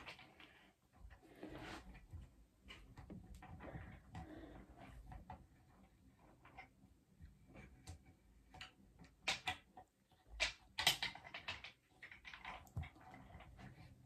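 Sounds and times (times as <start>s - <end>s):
scrapes: 0.0s - 6.6s.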